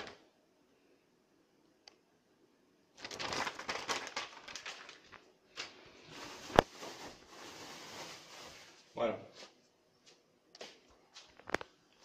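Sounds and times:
plastic wrapping rustling: 0:03.0 - 0:09.0.

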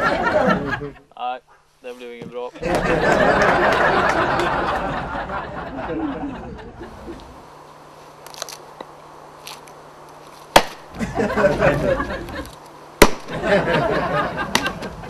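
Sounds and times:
person speaking: 0:00.7 - 0:02.6
axe striking log: 0:10.5 - 0:11.0, 0:13.0 - 0:13.3.

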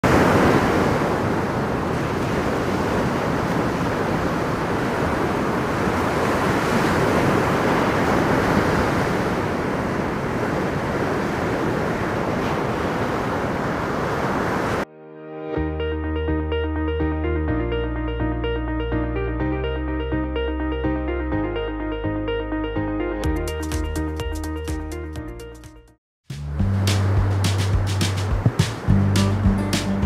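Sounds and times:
ocean surf breaking: 0:00.0 - 0:14.9, 0:26.6 - 0:30.0.

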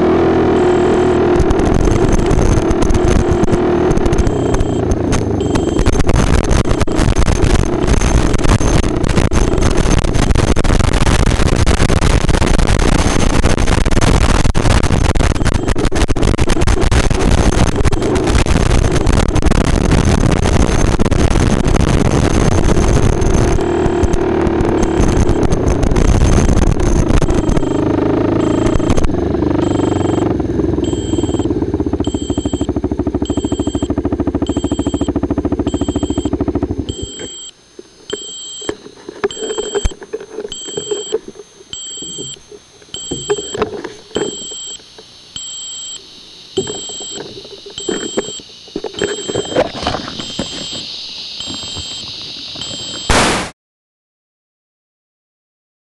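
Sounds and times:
atv engine running: 0:00.0 - 0:53.1
electronic buzzer beeping: 0:00.4 - 0:53.4
wind rush on microphone: 0:01.2 - 0:30.5.

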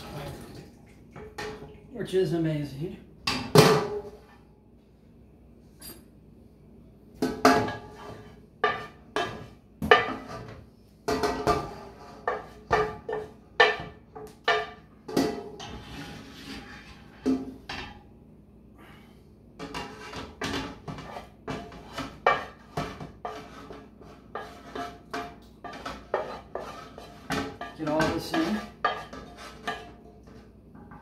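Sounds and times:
wooden spoon scraping metal skillet: 0:07.4 - 0:17.9, 0:19.6 - 0:30.5.

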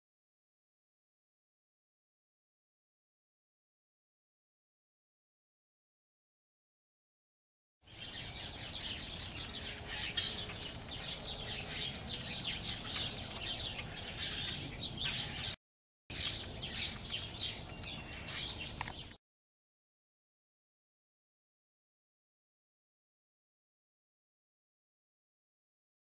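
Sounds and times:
small birds chirping: 0:07.8 - 0:19.2.

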